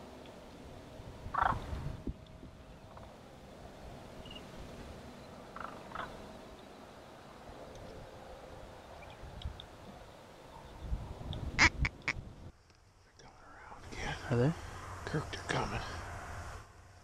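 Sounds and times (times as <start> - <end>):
large birds calling: 1.3 - 1.7, 5.1 - 7.0.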